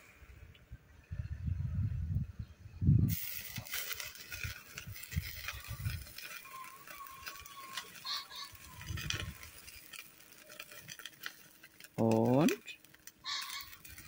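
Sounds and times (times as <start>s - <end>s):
wind rumbling on microphone: 0.0s - 10.8s
fire hissing and crackling: 2.8s - 14.0s.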